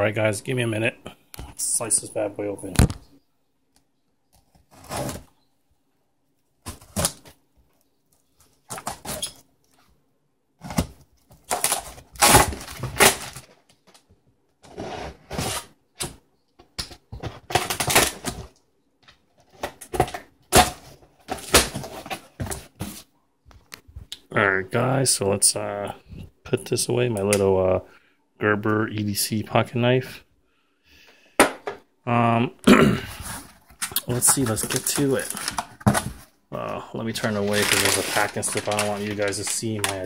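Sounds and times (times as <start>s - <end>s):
cardboard box rustling: 37.2s - 40.0s.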